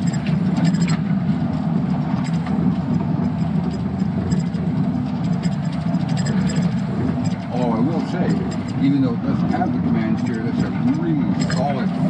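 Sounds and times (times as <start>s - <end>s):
diesel truck engine drone: 0.0s - 12.0s.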